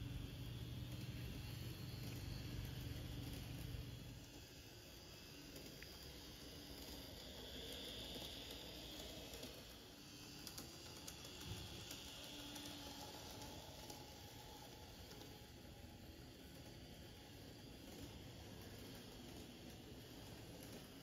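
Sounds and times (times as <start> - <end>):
faint electric motor whir: 0.0 - 21.0
wheels clicking on rails: 0.0 - 21.0.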